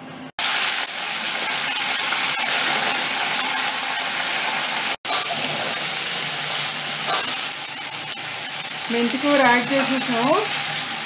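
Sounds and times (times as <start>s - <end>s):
leaves sizzling in hot oil: 0.4s - 11.0s
metal spatula turning leaves: 5.1s - 10.8s.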